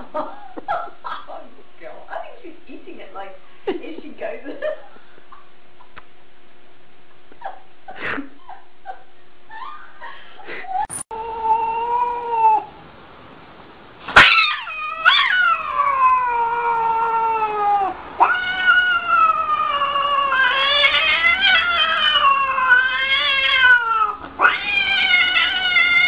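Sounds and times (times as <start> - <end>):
cat yowling: 10.9 - 12.7, 14.2 - 26.0.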